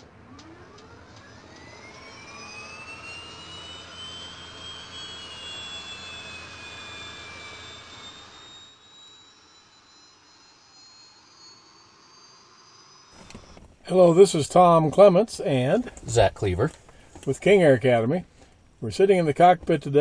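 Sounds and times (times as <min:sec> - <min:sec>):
jet aircraft rushing and whining: 0:00.0 - 0:13.6.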